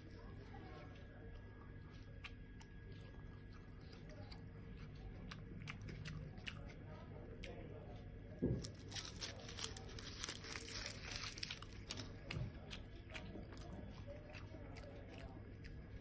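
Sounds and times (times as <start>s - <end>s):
man chewing: 1.8s - 6.8s, 8.6s - 16.0s
foil wrapper crinkling: 8.6s - 12.1s.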